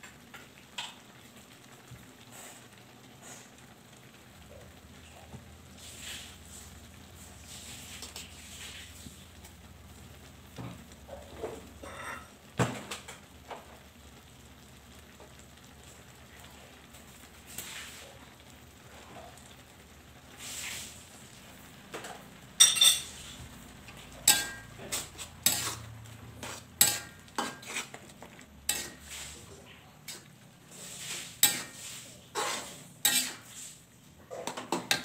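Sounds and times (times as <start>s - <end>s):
faint cooking noise: 0.0s - 35.0s
metal spatula scraping a wok: 5.8s - 9.2s, 11.4s - 12.3s, 17.5s - 18.1s, 20.3s - 21.0s, 22.6s - 35.0s.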